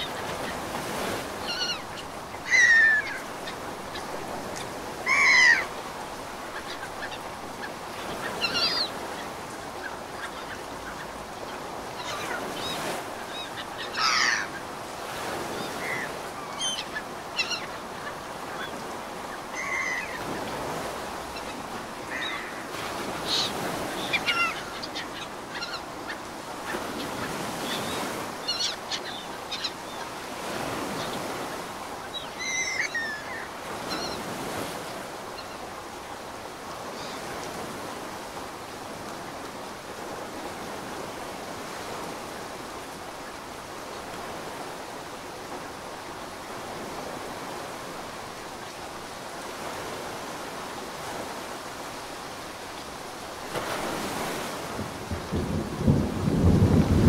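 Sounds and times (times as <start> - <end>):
birds calling: 0.0 - 35.9
ocean waves washing: 0.0 - 57.0.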